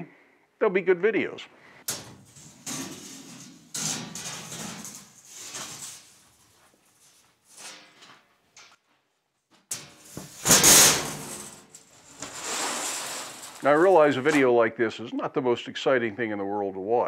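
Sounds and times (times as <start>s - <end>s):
steel sheet crashing on workbench: 1.9s - 6.3s, 9.7s - 14.4s
steel sheet flexing and wobbling: 1.9s - 6.6s, 9.8s - 14.6s
metal scraping: 1.9s - 8.1s, 9.7s - 14.6s.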